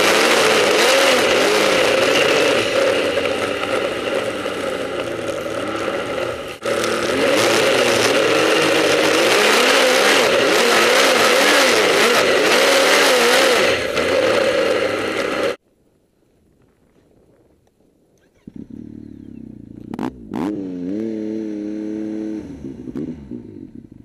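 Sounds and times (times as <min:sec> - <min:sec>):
snowmobile engine running: 0:00.0 - 0:15.6.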